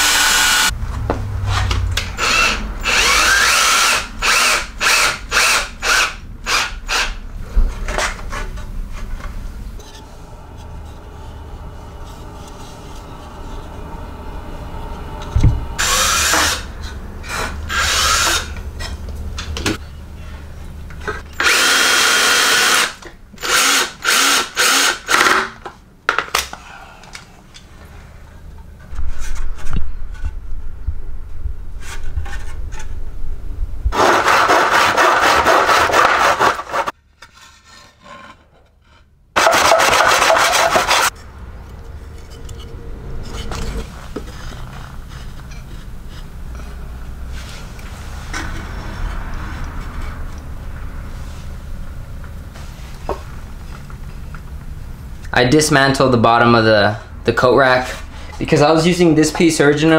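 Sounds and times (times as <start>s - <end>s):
power drill driving screws into wood: 2.2s - 7.2s, 21.4s - 25.5s.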